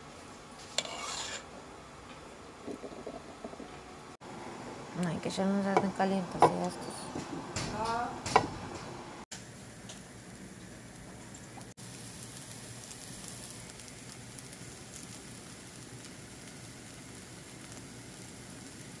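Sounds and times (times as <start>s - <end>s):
pancake sizzling in oil: 0.6s - 1.5s, 9.4s - 19.0s.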